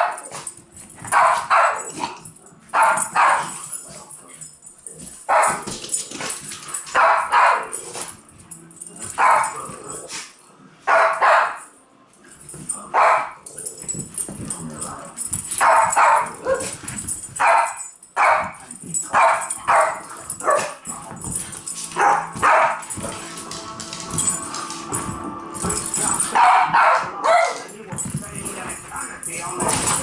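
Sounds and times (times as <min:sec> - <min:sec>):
small dogs barking: 0:01.1 - 0:03.6, 0:05.3 - 0:05.6, 0:06.9 - 0:07.8, 0:09.2 - 0:09.6, 0:10.9 - 0:11.6, 0:12.9 - 0:13.4, 0:15.6 - 0:16.8, 0:17.4 - 0:18.6, 0:19.2 - 0:20.8, 0:22.0 - 0:23.0, 0:26.3 - 0:27.7.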